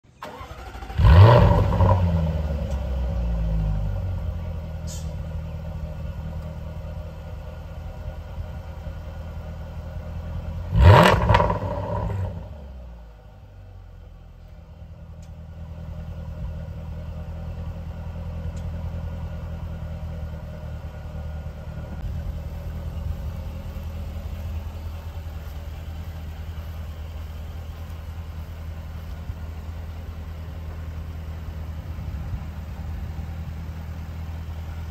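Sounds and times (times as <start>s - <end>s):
car engine start-up and idle: 0.0s - 34.9s
sharp engine rev: 0.2s - 2.6s, 10.7s - 12.6s.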